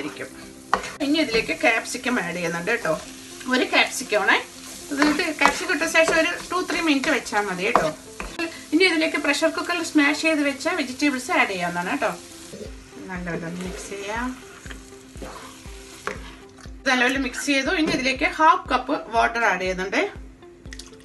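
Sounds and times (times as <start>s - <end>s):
spatula scraping a frying pan: 0.0s - 9.6s, 11.8s - 16.6s
food sizzling: 0.0s - 18.6s.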